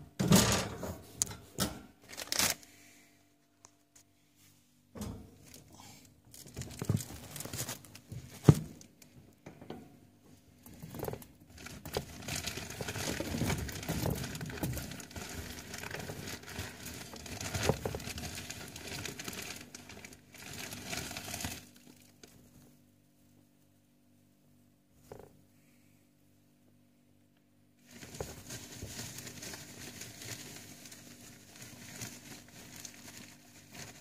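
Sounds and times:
hay rustling and crinkling: 27.8 - 34.0.

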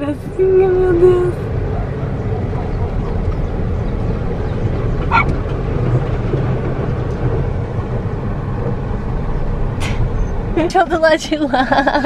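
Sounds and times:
car engine running low: 0.0 - 12.0
dog barking: 5.1 - 5.4.

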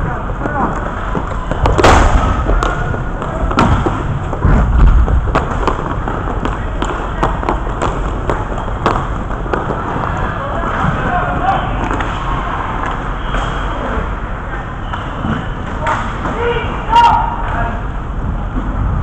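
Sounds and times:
sticks and puck clacking: 0.2 - 14.1
heavy thuds: 1.5 - 10.1.

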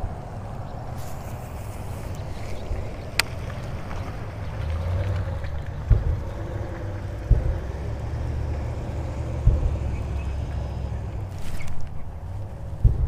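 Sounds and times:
wind buffeting microphone: 0.0 - 13.0
dull thumps: 2.7 - 13.0.

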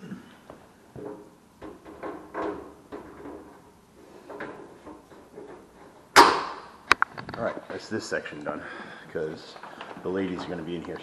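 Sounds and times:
metal casing knocks and rattles: 0.9 - 6.6
loud sharp clack: 6.2 - 6.8.

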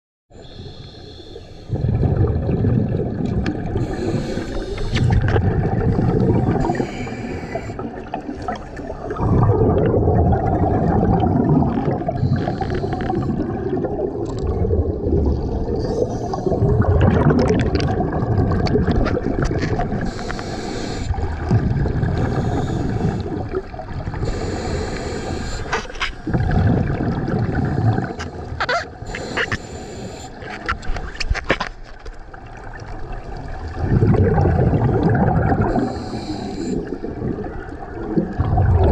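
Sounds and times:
regulator exhale bubbling: 0.4 - 31.2, 33.4 - 38.9
regulator hiss: 24.2 - 25.7, 35.8 - 36.9.

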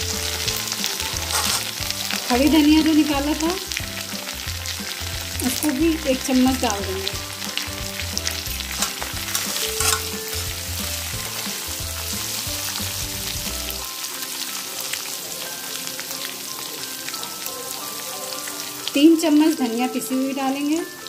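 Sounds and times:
spices sizzling in hot oil: 0.0 - 21.0
spatula scraping pan: 1.1 - 1.8, 8.4 - 10.8.

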